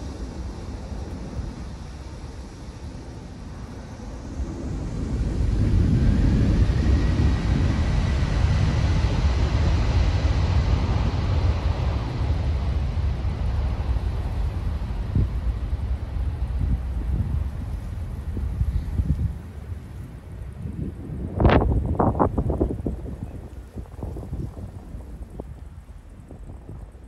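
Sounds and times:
deep rumble of jet blast: 0.0 - 27.0.

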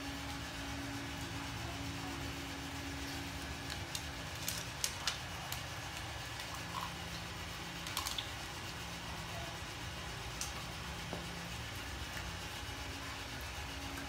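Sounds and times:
steady low hum: 0.0 - 14.0
dog eating with clicks and taps: 3.6 - 8.4.

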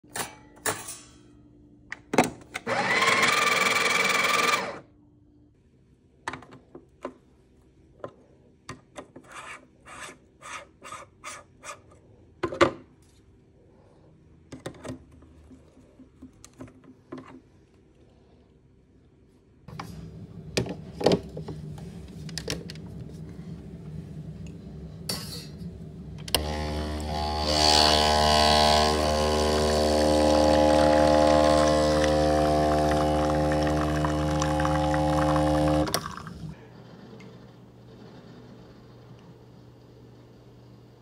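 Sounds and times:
electric coffee grinder running: 2.7 - 4.8, 26.2 - 36.6.

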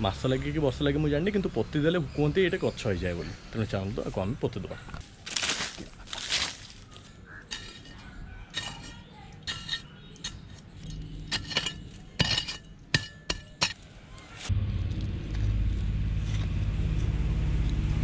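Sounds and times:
trowel clinking into dry soil: 5.3 - 13.8.

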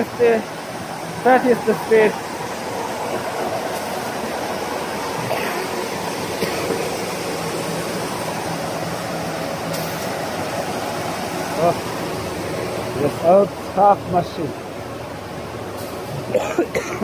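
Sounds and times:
folding machine running: 0.0 - 14.5.

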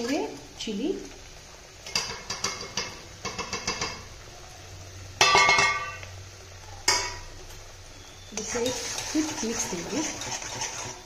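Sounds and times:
metal utensils clinking on pan: 0.0 - 0.4, 1.8 - 4.1, 5.2 - 6.1, 6.9 - 7.3, 8.4 - 11.0.

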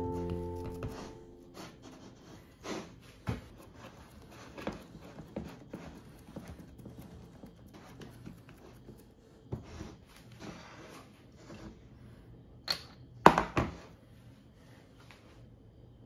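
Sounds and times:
fingers rubbing and tapping dough: 3.2 - 10.0.

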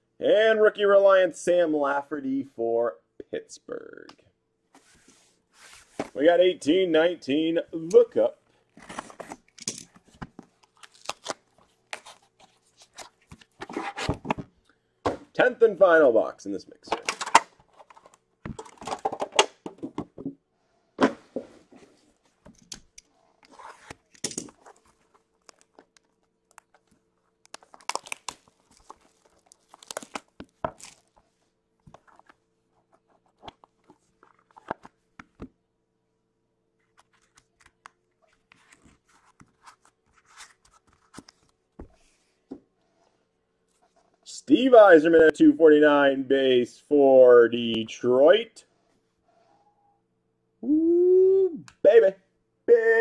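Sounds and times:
wrapping tearing and crinkling: 10.4 - 13.6, 23.4 - 31.3.

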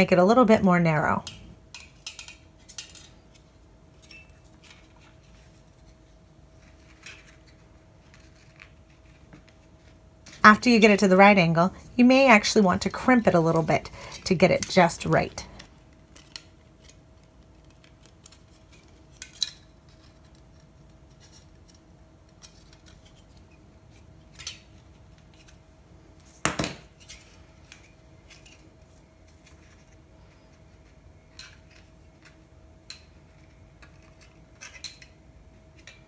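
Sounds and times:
faint steady hum: 0.0 - 36.0
metal strip clicks and rattles: 1.3 - 4.4.

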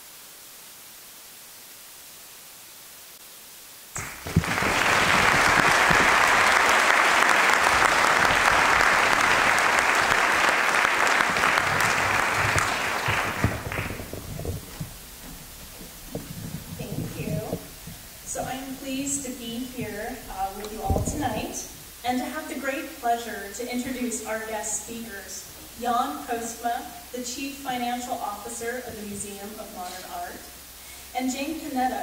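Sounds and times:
faint hiss: 0.0 - 32.0
audience applauding: 4.0 - 18.6.

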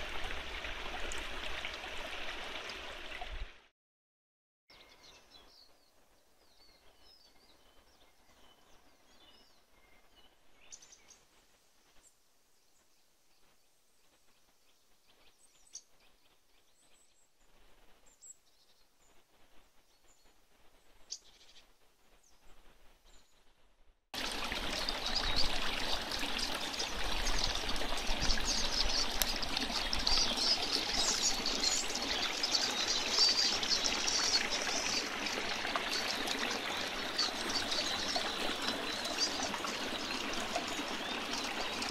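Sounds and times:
brook splashing over stones: 0.0 - 3.6, 24.2 - 41.9
faint bird chirps: 12.0 - 23.4.

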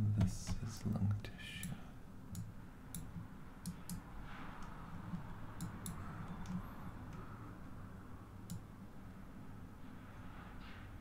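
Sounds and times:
low steady hum: 0.0 - 11.0
computer mouse clicking: 2.3 - 7.3, 8.4 - 8.7.

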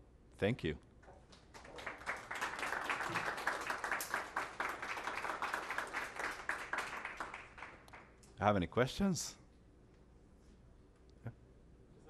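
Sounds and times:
audience applauding: 1.3 - 8.1.

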